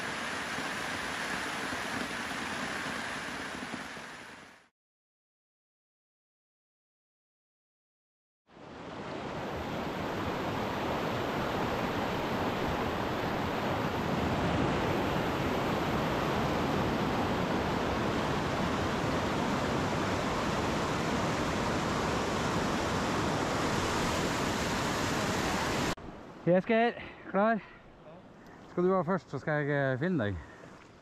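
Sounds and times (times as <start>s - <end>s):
river rapid rushing: 9.3s - 26.0s.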